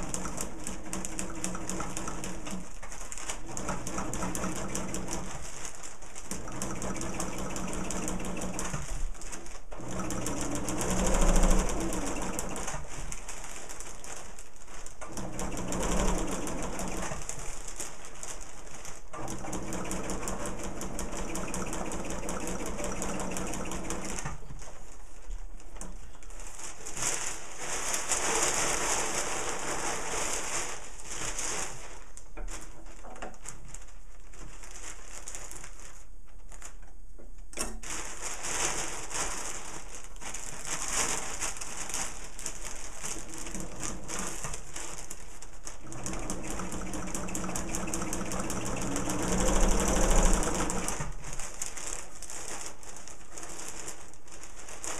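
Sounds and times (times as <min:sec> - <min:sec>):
sewing machine running: 0:00.0 - 0:05.6, 0:06.2 - 0:09.1, 0:09.7 - 0:13.2, 0:15.0 - 0:17.7, 0:19.1 - 0:24.4, 0:43.0 - 0:51.7.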